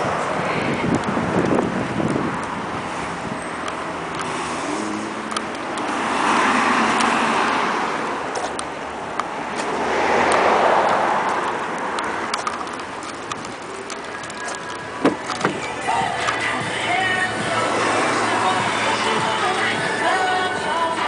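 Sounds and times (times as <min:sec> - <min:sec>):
car passing by: 0:04.3 - 0:08.2, 0:09.3 - 0:12.3, 0:17.4 - 0:19.1.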